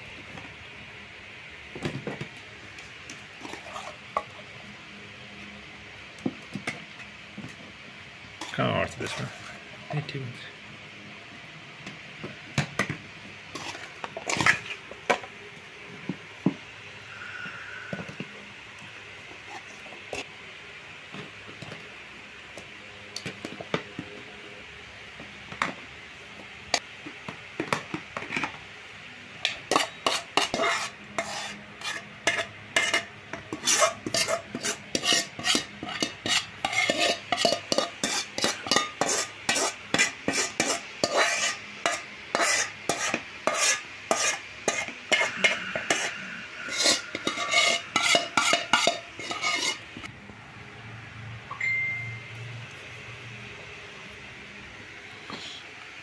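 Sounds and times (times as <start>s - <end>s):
metal spoon scraping metal bowl: 13.5s - 14.8s, 29.5s - 49.9s.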